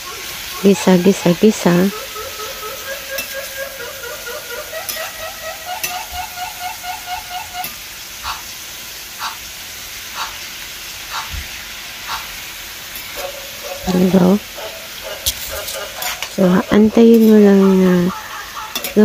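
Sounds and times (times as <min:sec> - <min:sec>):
short squeaky tones rising in pitch: 0:00.0 - 0:07.8
meat and onions sizzling in a pan: 0:00.0 - 0:19.0
metal spoon stirring: 0:02.8 - 0:05.2, 0:15.2 - 0:19.0.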